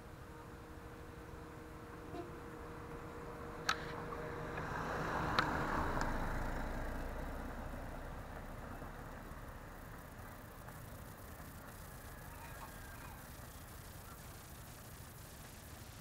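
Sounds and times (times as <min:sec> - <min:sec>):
car passing by: 0:01.8 - 0:13.7.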